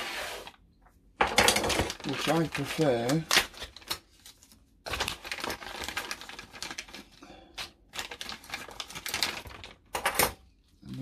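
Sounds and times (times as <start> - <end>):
packaging rustling: 1.6 - 9.9.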